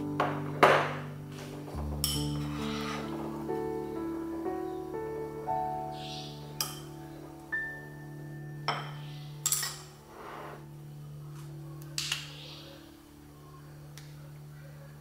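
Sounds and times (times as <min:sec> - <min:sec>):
metal tongs clinking on glass: 0:09.4 - 0:10.0.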